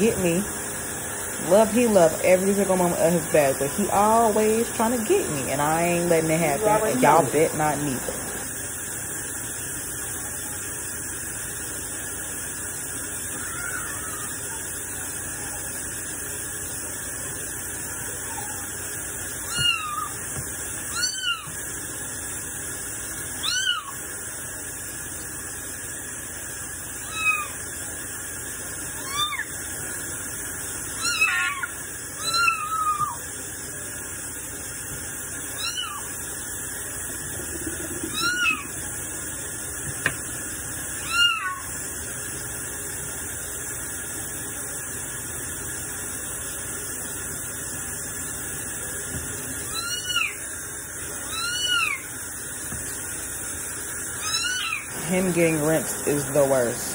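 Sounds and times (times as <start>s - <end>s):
kitten meowing: 19.4s - 20.2s, 20.9s - 21.6s, 23.4s - 24.0s, 27.0s - 27.6s, 29.0s - 29.5s, 31.0s - 33.2s, 35.6s - 36.1s, 38.1s - 38.7s, 41.0s - 41.6s, 49.7s - 50.4s, 51.2s - 52.1s, 54.2s - 54.9s.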